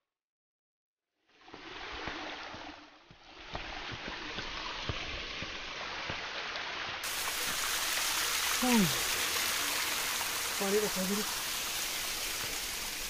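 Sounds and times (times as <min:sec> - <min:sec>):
waterfall rushing and splashing: 0:03.5 - 0:13.0.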